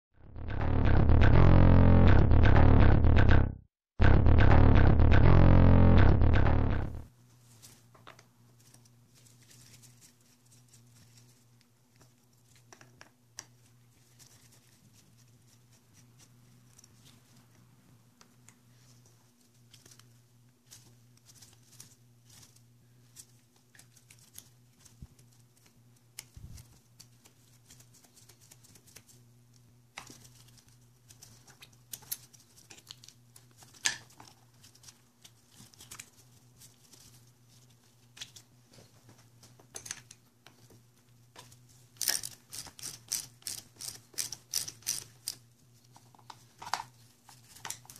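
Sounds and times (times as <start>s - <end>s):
low steady hum: 0.2s - 7.1s.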